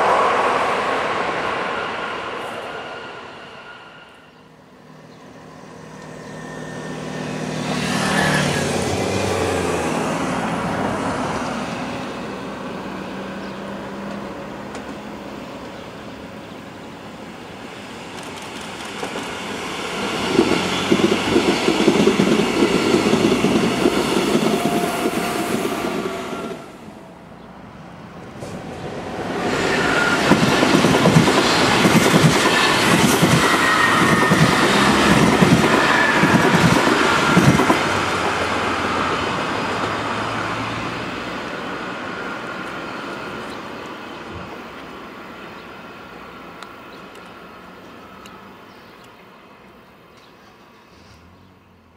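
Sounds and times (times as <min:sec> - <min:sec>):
train wheels clattering on rails: 0:18.1 - 0:26.5, 0:28.4 - 0:40.1.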